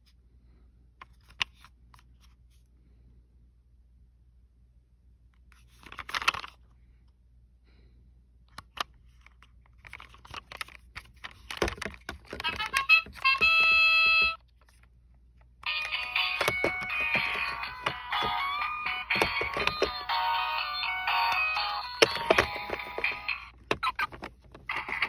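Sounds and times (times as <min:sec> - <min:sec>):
plastic toy car rustling and clicking: 0:01.0 - 0:02.4, 0:05.4 - 0:06.7, 0:08.5 - 0:25.0
toy electronic sound effect: 0:12.4 - 0:14.4, 0:15.6 - 0:25.0.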